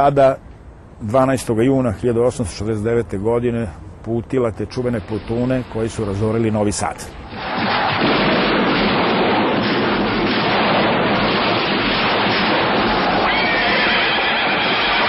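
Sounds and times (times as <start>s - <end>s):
loud rush of dense noise: 0.0s - 15.0s
high wavering cry: 13.2s - 15.0s.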